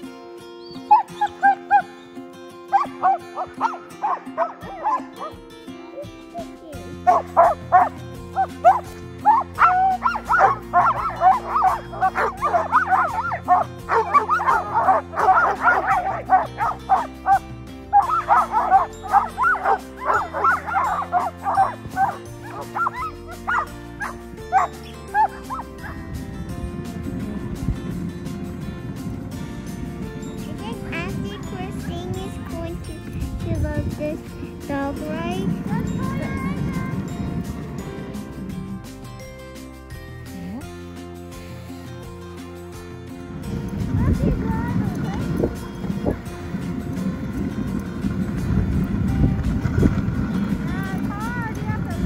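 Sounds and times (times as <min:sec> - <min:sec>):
background music: 0:00.0 - 0:52.0
dogs barking and yipping: 0:00.5 - 0:27.1.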